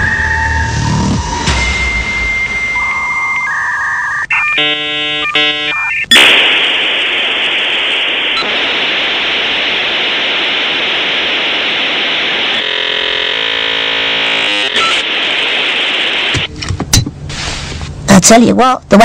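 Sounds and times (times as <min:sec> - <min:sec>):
buzzing modem tones: 0:00.0 - 0:16.6
static hiss: 0:04.4 - 0:17.8.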